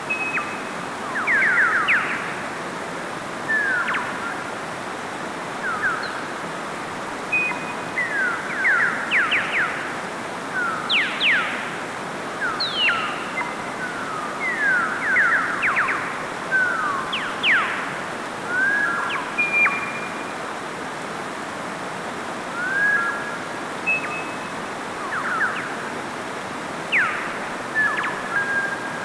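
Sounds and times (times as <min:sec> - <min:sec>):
stream rushing over rocks: 0:00.0 - 0:29.0
bird singing whistled phrases: 0:23.9 - 0:24.5, 0:26.9 - 0:29.0.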